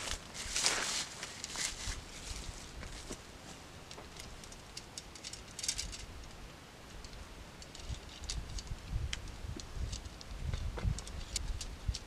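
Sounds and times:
light ticks and rustles: 0.0 - 12.0
wind rumble on microphone: 7.7 - 12.0.

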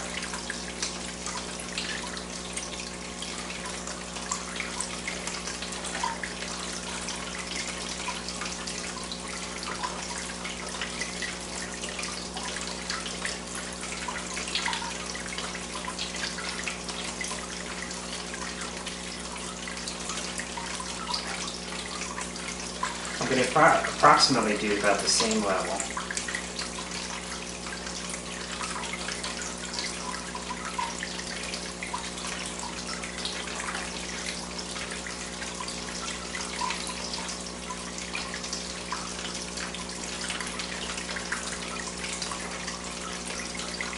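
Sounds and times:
water trickling and splashing: 0.0 - 43.9.

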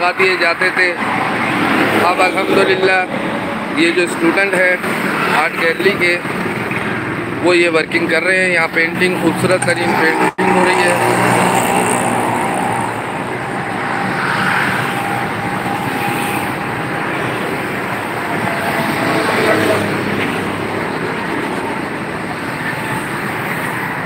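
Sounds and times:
traffic rushing in an underpass: 0.0 - 24.0.

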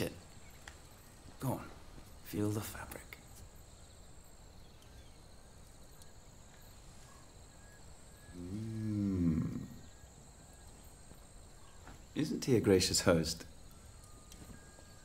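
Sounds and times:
man humming: 8.3 - 9.9.

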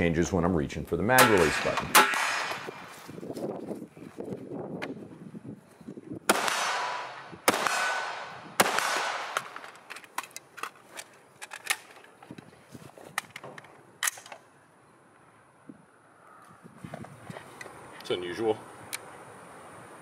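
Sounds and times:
rifle shots echoing: 1.2 - 2.8, 6.3 - 9.6
metallic clicks of magazine change: 9.4 - 12.2, 13.2 - 14.5.

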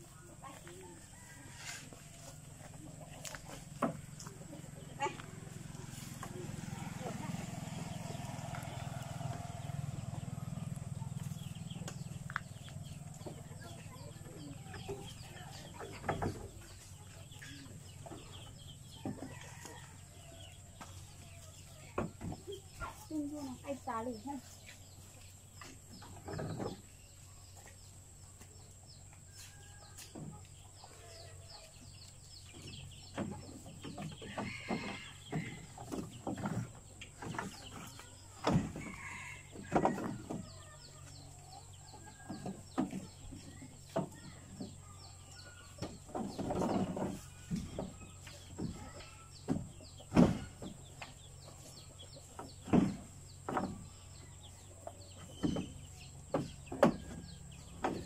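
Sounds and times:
chickens clucking: 0.0 - 58.0
leaves rustling: 5.0 - 10.1.

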